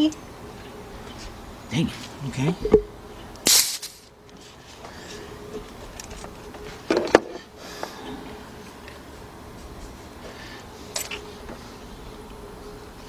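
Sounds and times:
hiss of released air: 0:03.4 - 0:04.1.

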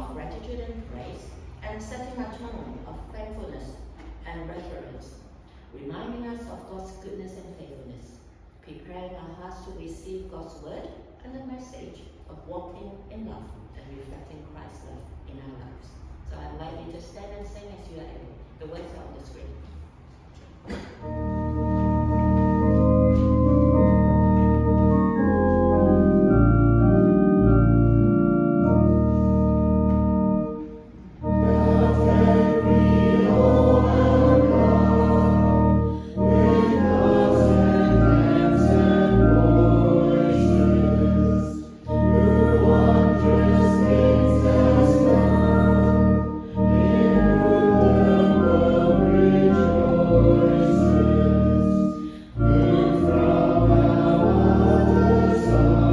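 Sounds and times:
church organ playing chords: 0:20.7 - 0:55.9
congregation singing a hymn: 0:20.7 - 0:55.9.

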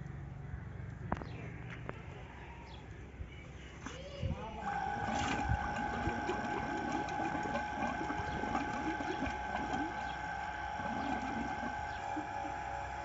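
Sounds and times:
water pump whining: 0:04.4 - 0:13.0
water gurgling and splashing: 0:04.6 - 0:13.0.

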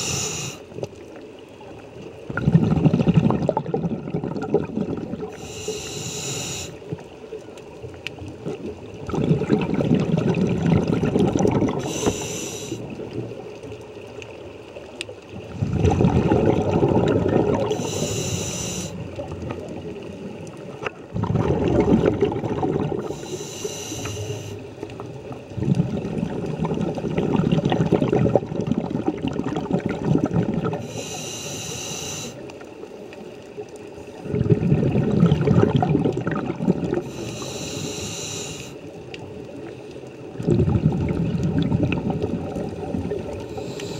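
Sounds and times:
regulator inhale hiss: 0:00.0 - 0:00.8, 0:05.3 - 0:06.9, 0:11.8 - 0:12.9, 0:17.7 - 0:19.1, 0:23.0 - 0:24.8, 0:30.8 - 0:32.5, 0:37.0 - 0:38.9, 0:43.4 - 0:43.9
exhaled air bubbling: 0:00.0 - 0:43.9.

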